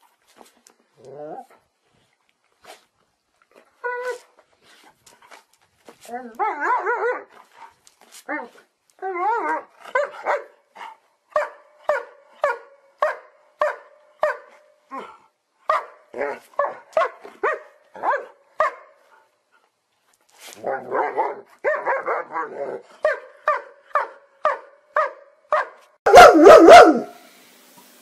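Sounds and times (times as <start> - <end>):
dog barking: 9.9 - 10.6, 11.3 - 14.5, 15.7 - 18.9, 20.9 - 27.2.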